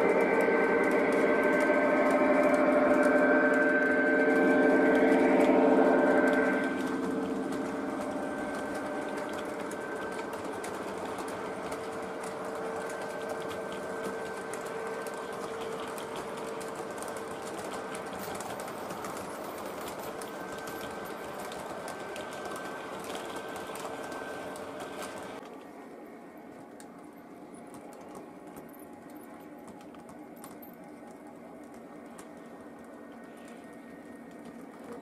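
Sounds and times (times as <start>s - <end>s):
model train motor whine: 0.0s - 25.4s
wheels clicking on rails: 0.0s - 35.0s.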